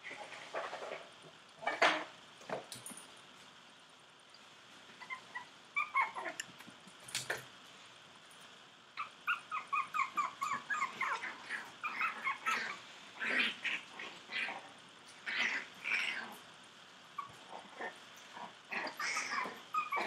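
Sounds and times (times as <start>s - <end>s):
puppies yipping: 5.0s - 6.4s, 9.0s - 12.8s, 18.7s - 20.0s.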